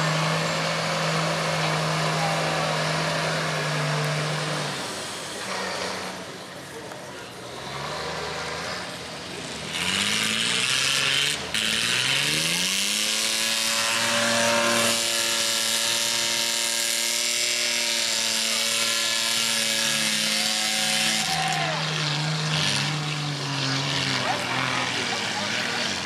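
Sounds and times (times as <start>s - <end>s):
engine revving: 0.0s - 6.7s, 7.3s - 26.0s.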